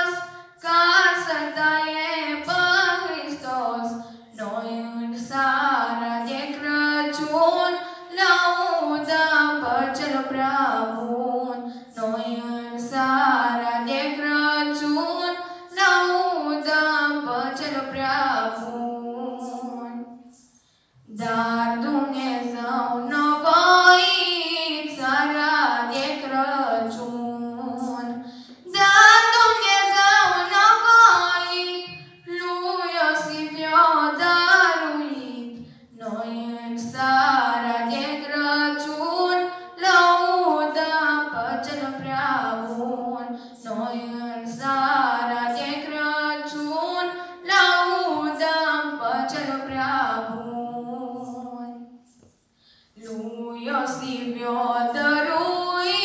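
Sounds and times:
women singing a carol: 0:21.1 - 0:24.1, 0:24.7 - 0:31.6, 0:32.3 - 0:52.0, 0:53.0 - 0:56.0.

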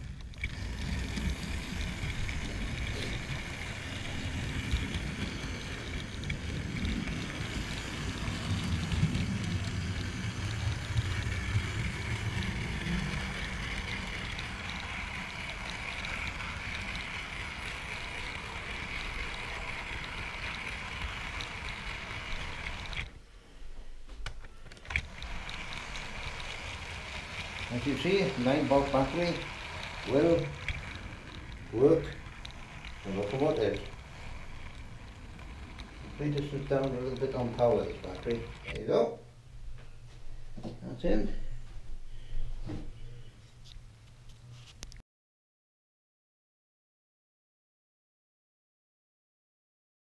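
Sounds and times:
model train wheels rattling: 0:00.0 - 0:23.1, 0:24.7 - 0:39.0
constant whine: 0:00.0 - 0:41.0.

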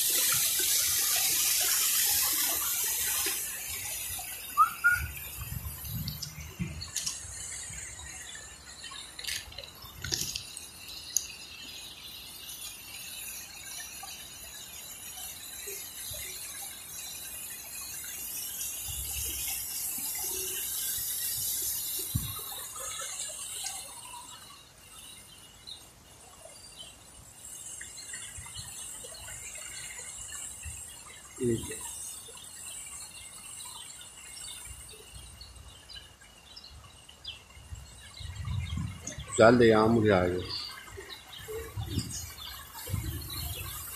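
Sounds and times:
fountain water splashing: 0:00.0 - 0:43.9
rain hiss: 0:00.0 - 0:43.9
faint bird chirps: 0:03.8 - 0:09.1
soft low thumps: 0:05.9 - 0:07.0.

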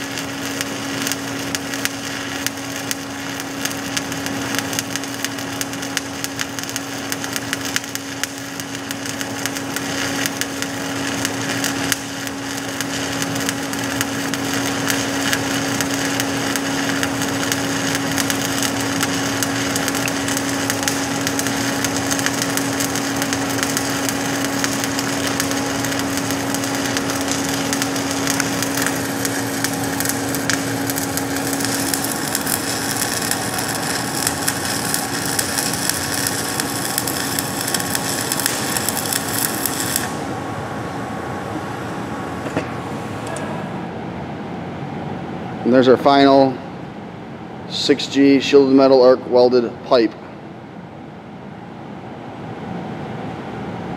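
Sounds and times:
welding arc crackling and sizzling: 0:00.0 - 0:40.5
steady hum: 0:00.0 - 0:53.9.

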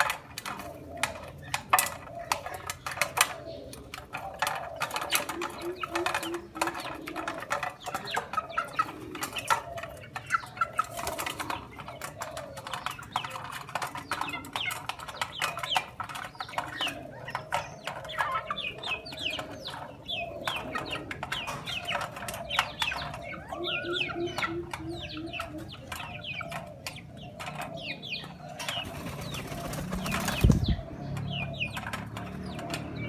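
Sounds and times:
chicken clucking: 0:00.0 - 0:33.0
wings flapping: 0:28.8 - 0:30.8.

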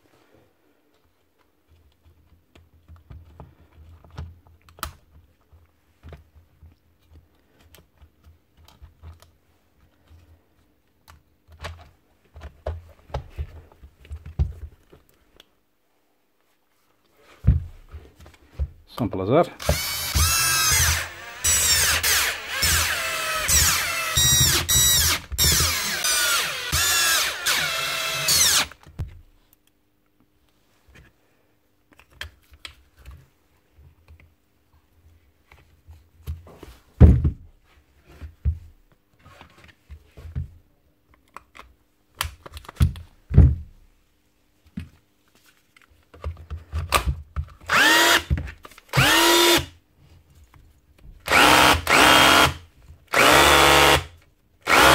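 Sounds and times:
rotary hammer motor running: 0:19.6 - 0:28.7, 0:47.7 - 0:48.2, 0:49.0 - 0:49.6, 0:51.3 - 0:52.6, 0:53.2 - 0:54.0, 0:54.7 - 0:54.9
cordless drill driving screws: 0:19.6 - 0:28.8, 0:47.7 - 0:48.3, 0:48.9 - 0:49.7, 0:51.3 - 0:54.1, 0:54.7 - 0:54.9.

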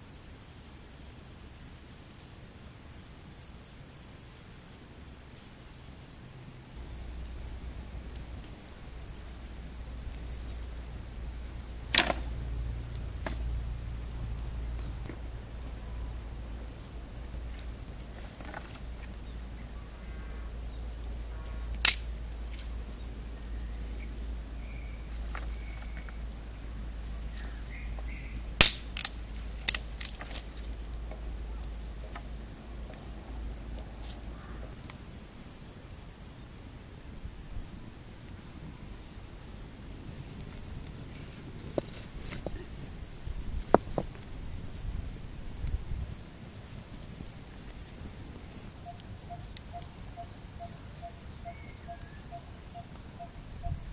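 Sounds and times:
high insect buzz: 0:00.0 - 0:53.9
firewood cracking: 0:06.7 - 0:35.2, 0:40.0 - 0:44.9.

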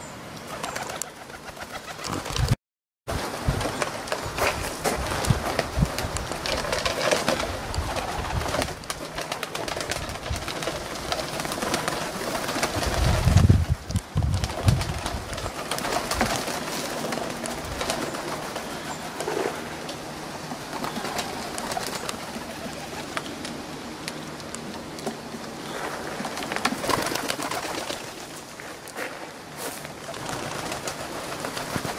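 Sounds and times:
wing flaps and clatters: 0:00.5 - 0:31.9
doves and pigeons cooing: 0:14.4 - 0:29.0.

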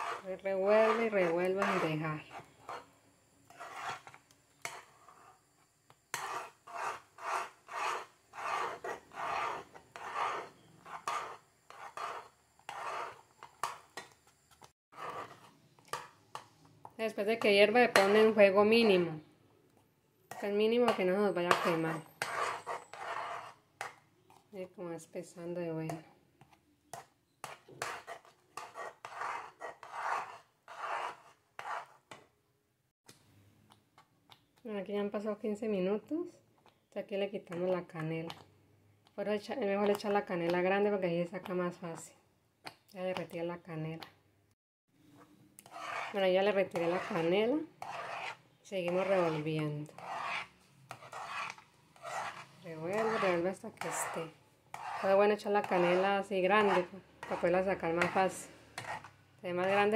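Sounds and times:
metal spoon scraping a metal pot: 0:00.0 - 0:02.9, 0:03.5 - 0:05.4, 0:06.1 - 0:16.5, 0:17.2 - 0:19.1, 0:20.3 - 0:24.4, 0:26.9 - 0:32.2, 0:45.1 - 0:59.9.

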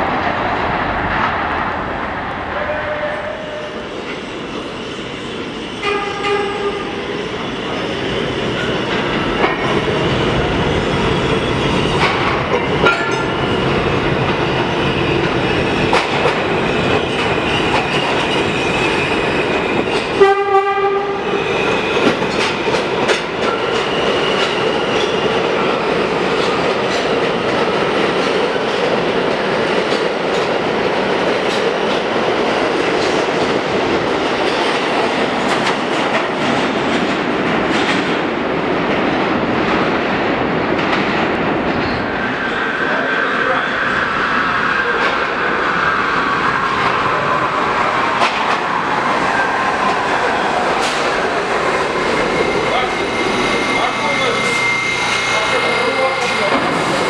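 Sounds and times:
train wheels rumbling on rails: 0:00.0 - 0:57.0
train horn blast: 0:05.8 - 0:07.0, 0:20.2 - 0:21.3.

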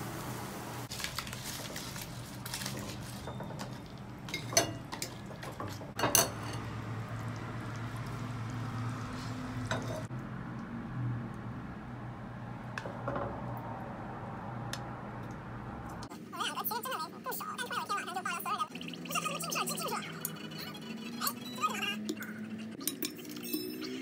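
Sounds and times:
ladle knocking and scraping wok: 0:02.6 - 0:06.8, 0:09.6 - 0:10.1.

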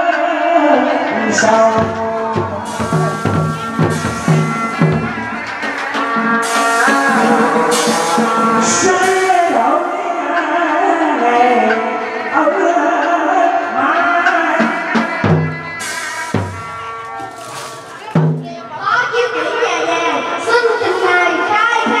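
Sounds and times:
drums and percussion: 0:01.3 - 0:10.0, 0:13.7 - 0:19.3
sharp drum strokes: 0:01.4 - 0:09.7, 0:14.6 - 0:18.8
wavering melody: 0:02.3 - 0:09.4.

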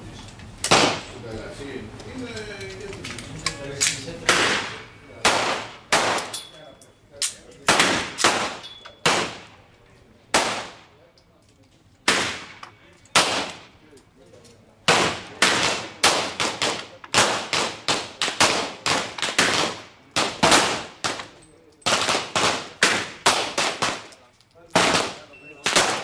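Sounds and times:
pistol gunshots: 0:00.7 - 0:01.1, 0:04.3 - 0:06.4, 0:07.7 - 0:09.5, 0:10.3 - 0:10.9, 0:12.0 - 0:13.6, 0:14.9 - 0:24.1, 0:24.8 - 0:26.0.

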